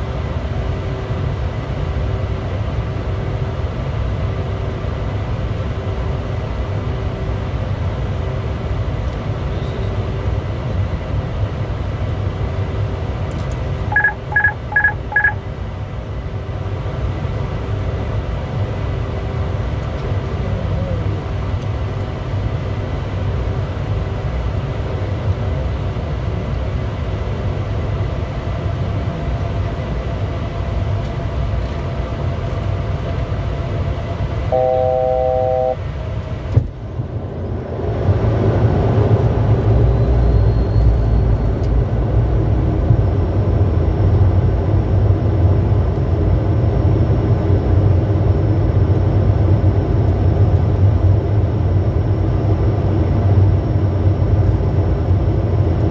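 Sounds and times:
jet engine and airflow rumble: 0.0 - 55.9
three-tone chime: 34.6 - 35.8.

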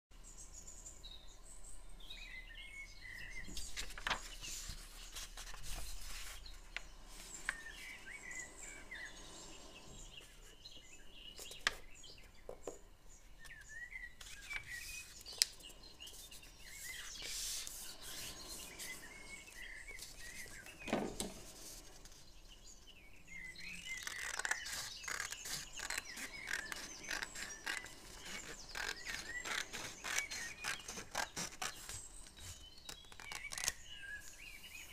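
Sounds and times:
small birds chirping: 0.1 - 34.9
paper being folded: 3.5 - 7.8, 14.2 - 22.2, 23.9 - 33.8
scissors cutting paper: 23.9 - 33.8.

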